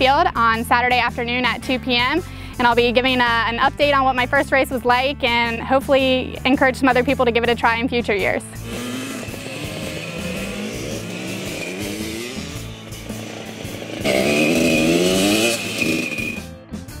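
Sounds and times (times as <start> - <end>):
dirt bike engine revving: 8.6 - 16.5.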